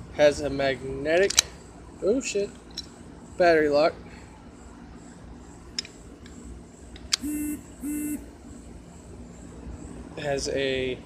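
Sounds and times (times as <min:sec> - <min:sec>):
short steady tones: 0:07.1 - 0:08.4.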